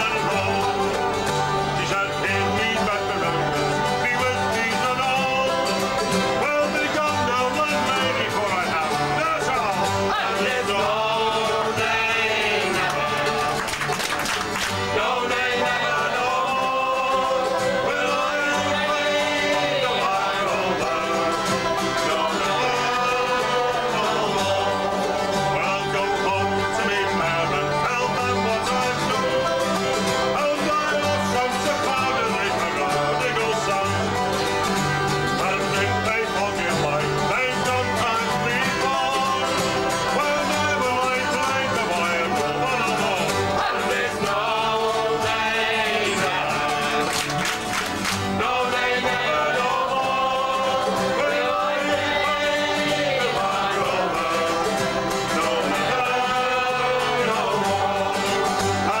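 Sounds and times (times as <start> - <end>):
acoustic guitar: 0.0 - 59.0
banjo: 0.0 - 59.0.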